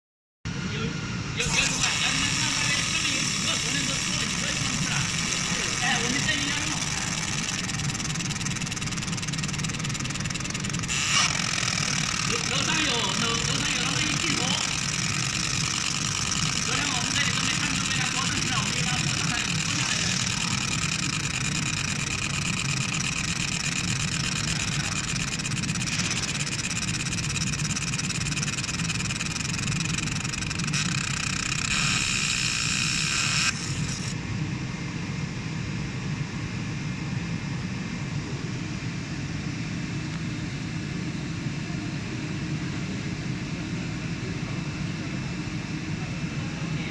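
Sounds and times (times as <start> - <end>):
fan hum: 0.5 - 46.9
laser engraver head whirring buzz: 1.4 - 34.2.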